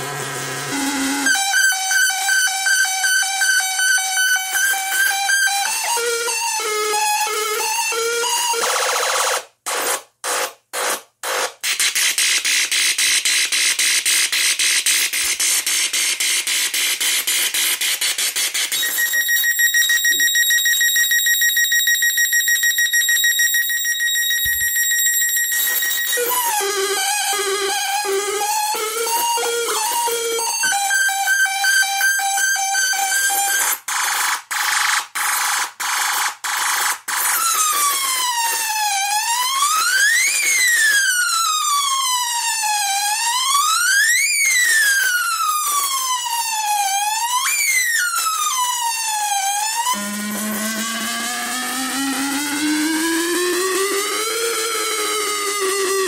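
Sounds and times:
plasma speaker alarm tone: 0:18.7 - 0:33.6
high-voltage arc wailing: 0:23.0 - 0:31.4, 0:49.3 - 0:55.9.

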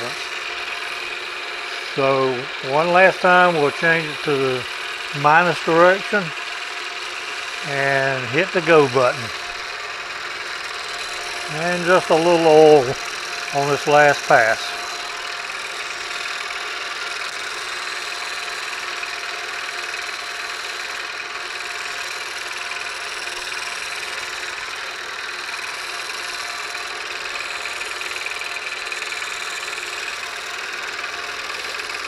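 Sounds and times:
milling machine humming: 0:00.0 - 0:32.0.

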